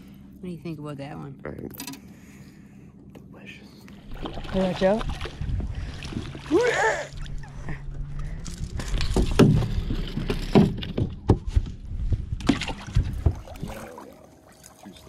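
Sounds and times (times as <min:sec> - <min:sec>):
steady low hum: 0:00.0 - 0:15.0
knocks and thumps on a boat: 0:08.8 - 0:13.9.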